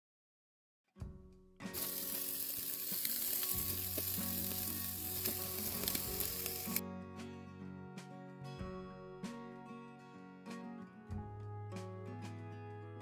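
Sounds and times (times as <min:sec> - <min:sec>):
background music: 0:01.0 - 0:13.0
meat sizzling on a grill: 0:01.8 - 0:06.8.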